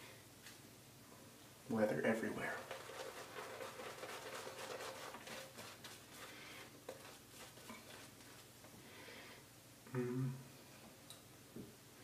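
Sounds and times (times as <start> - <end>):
shaving brush strokes on face: 2.4 - 8.5.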